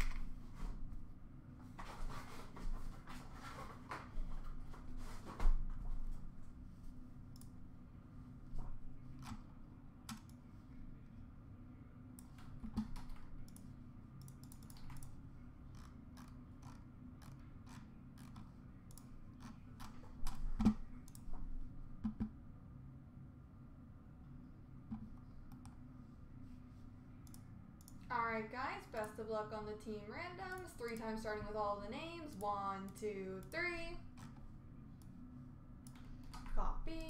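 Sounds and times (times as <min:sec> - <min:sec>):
computer mouse clicks: 0:07.3 - 0:07.6, 0:09.1 - 0:09.5, 0:10.1 - 0:10.4, 0:12.2 - 0:21.3, 0:22.0 - 0:22.3, 0:24.9 - 0:25.8, 0:27.2 - 0:28.1, 0:29.0 - 0:29.2, 0:30.5 - 0:31.2, 0:32.4 - 0:34.4.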